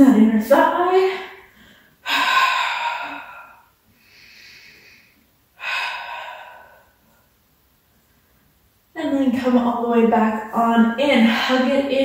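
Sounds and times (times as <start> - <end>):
woman breathing: 1.0 - 8.6.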